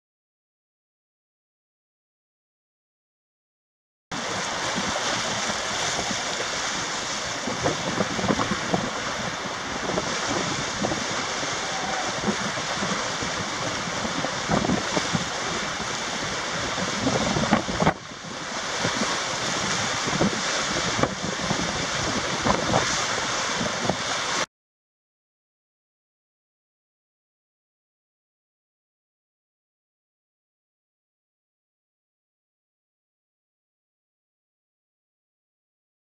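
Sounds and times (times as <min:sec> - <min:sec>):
wind on microphone: 0:04.2 - 0:24.5.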